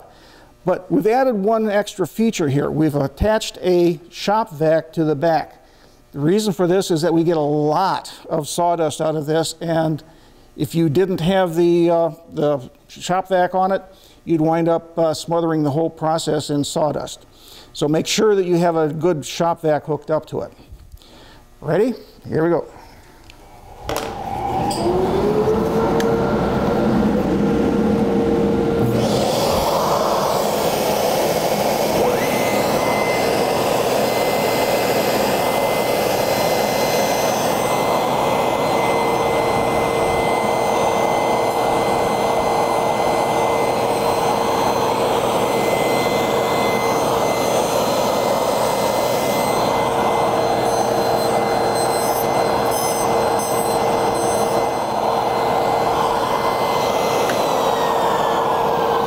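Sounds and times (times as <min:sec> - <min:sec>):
shop vac rushing noise: 0:23.4 - 0:59.0
table saw motor whine: 0:23.4 - 0:59.0.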